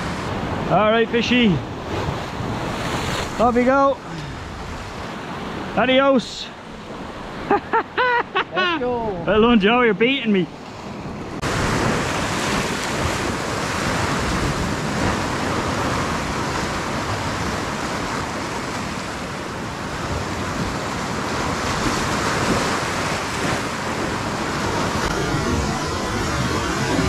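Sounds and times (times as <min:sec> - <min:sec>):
sea waves breaking on rocks: 0:00.0 - 0:06.0, 0:10.6 - 0:27.0
wind on microphone: 0:10.9 - 0:27.0.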